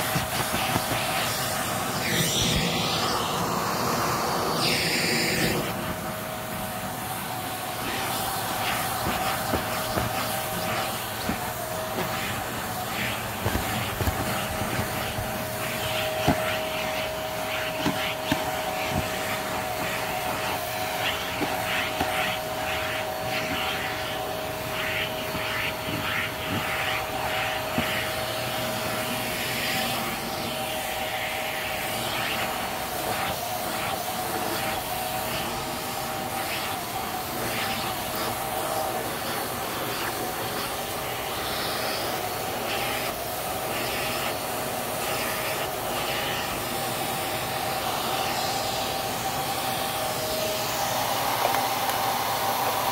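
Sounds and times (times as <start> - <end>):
vacuum cleaner whine: 0.0 - 52.9
nozzle rubbing on leather: 7.8 - 30.5.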